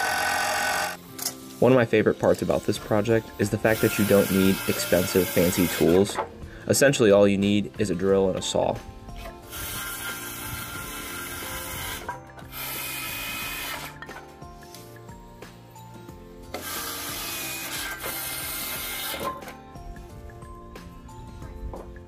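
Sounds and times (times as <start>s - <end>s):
circular saw cutting wood: 0.0s - 1.0s, 2.3s - 6.2s, 9.3s - 14.2s, 16.5s - 19.5s
background music: 0.0s - 22.0s.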